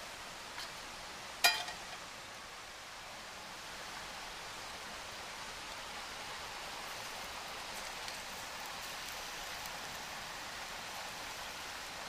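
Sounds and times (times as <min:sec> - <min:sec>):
batter sizzling in a frying pan: 0:06.8 - 0:10.1.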